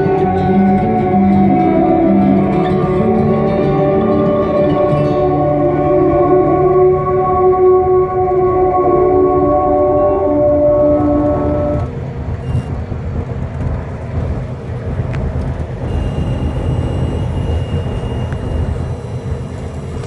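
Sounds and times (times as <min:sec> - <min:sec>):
music: 0:00.0 - 0:11.9
vehicle cab road rumble: 0:07.8 - 0:20.0.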